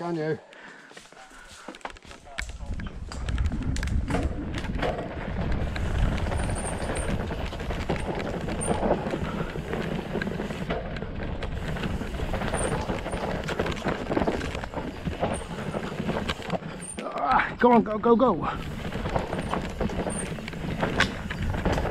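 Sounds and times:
bike tyres rolling over dirt: 1.6s - 21.9s
bike chain and frame rattling: 1.9s - 21.9s
low rumble: 2.6s - 9.3s.

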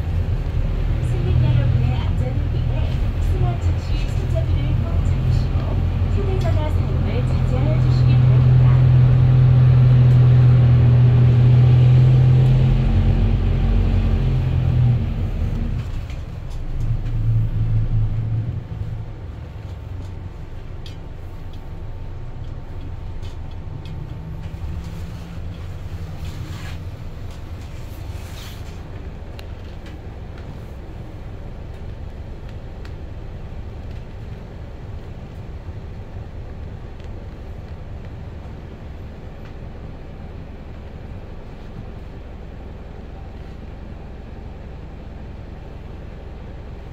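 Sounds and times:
bus engine droning: 0.0s - 46.9s.

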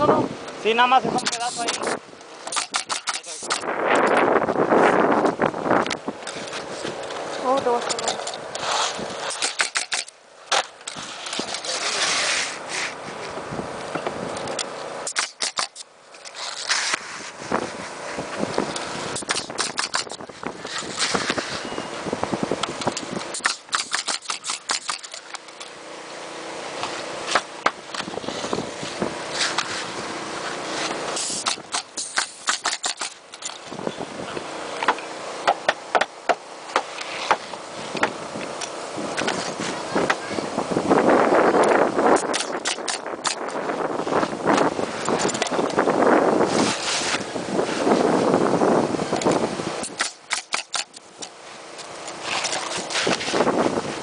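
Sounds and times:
noisy rustle: 0.0s - 35.9s, 36.5s - 54.0s
nail gun shots: 1.2s - 3.7s, 9.2s - 10.7s, 15.0s - 15.9s, 19.2s - 20.2s, 23.3s - 25.3s, 31.2s - 33.2s, 42.2s - 43.5s, 49.8s - 51.0s.

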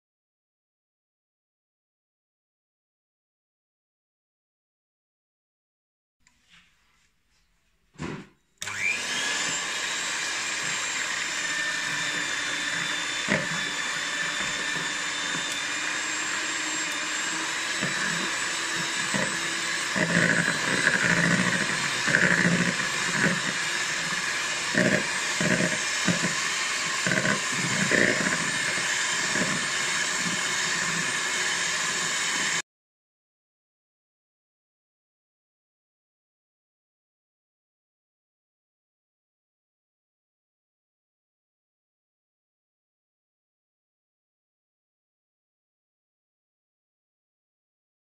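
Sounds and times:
electric hand mixer running: 8.6s - 32.6s.

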